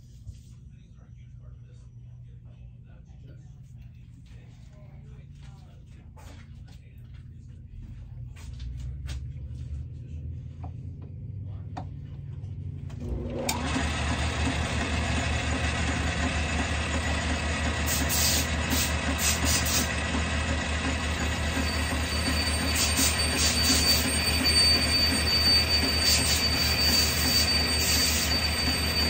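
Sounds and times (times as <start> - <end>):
lathe motor whining: 12.9 - 29.0
cutting tool scraping: 17.9 - 20.0, 21.2 - 29.0
thin high squeal: 21.3 - 29.0.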